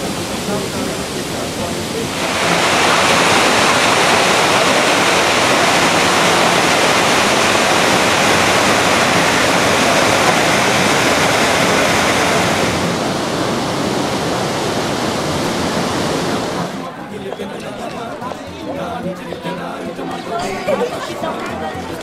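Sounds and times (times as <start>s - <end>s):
loud rushing noise: 0.0s - 17.1s.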